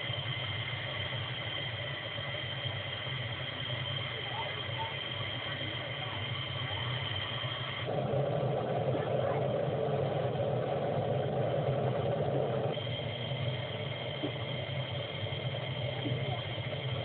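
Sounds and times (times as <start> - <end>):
low engine hum: 0.0 - 17.0
thin high whine: 0.0 - 17.0.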